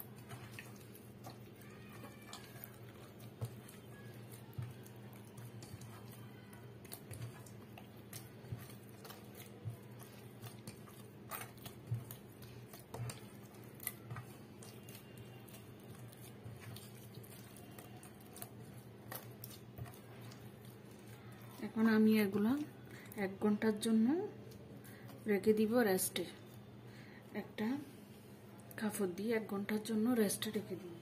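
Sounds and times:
dough squelching and slapping: 0.0 - 26.7.

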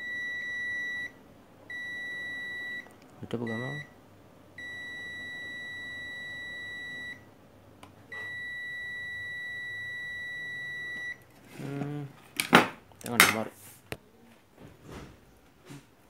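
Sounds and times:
multimeter continuity beep: 0.0 - 3.9, 4.6 - 7.2, 8.1 - 11.2.

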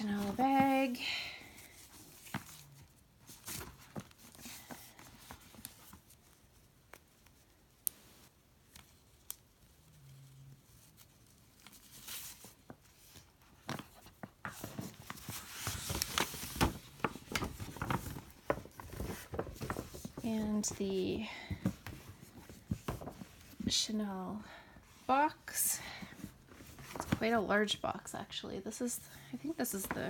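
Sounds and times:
paper bag rustling and crinkling: 0.0 - 6.1, 14.2 - 23.6.

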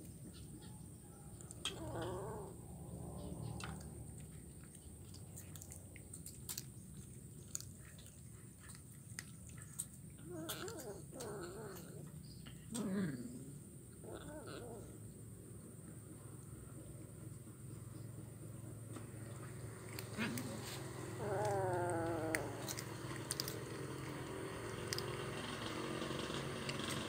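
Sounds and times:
kitten vocal sounds: 1.4 - 15.1, 19.7 - 25.3
kitten crunching bones: 3.2 - 12.9, 18.9 - 27.0.

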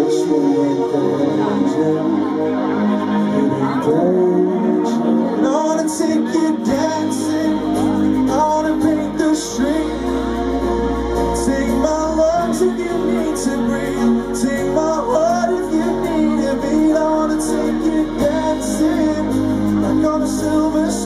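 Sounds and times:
live band playing: 0.0 - 21.0
person singing: 0.0 - 21.0.

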